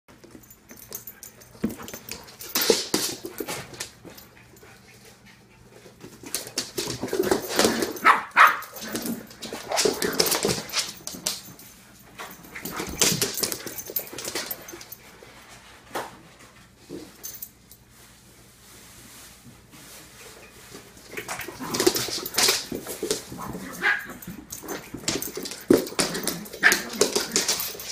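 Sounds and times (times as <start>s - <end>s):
dogs barking: 8.0s - 8.8s.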